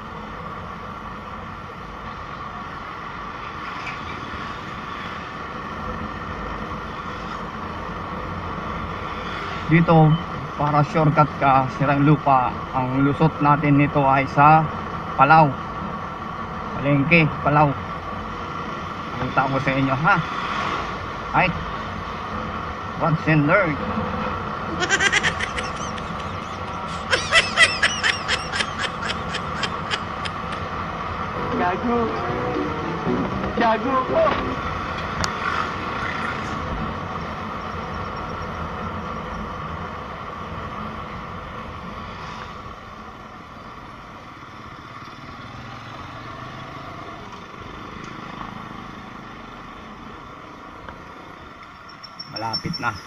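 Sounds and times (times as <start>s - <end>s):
road and wind noise: 0.0s - 53.0s
high-pitched chirping calls: 24.8s - 30.7s, 51.8s - 53.0s.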